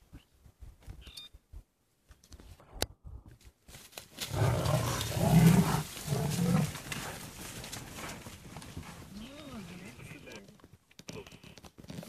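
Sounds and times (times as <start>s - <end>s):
leopard growling: 4.2s - 10.4s.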